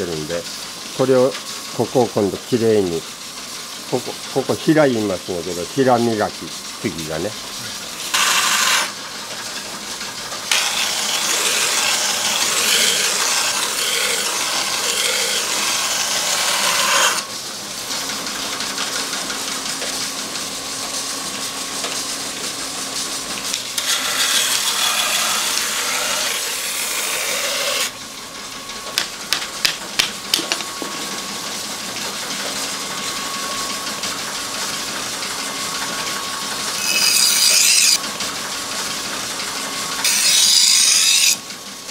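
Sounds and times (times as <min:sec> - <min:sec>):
grinding wheel humming: 0:03.8 - 0:20.3, 0:22.7 - 0:41.5
knife blade grinding on stone: 0:08.1 - 0:09.0, 0:10.5 - 0:17.3, 0:23.8 - 0:27.9, 0:36.7 - 0:38.0, 0:40.0 - 0:41.4.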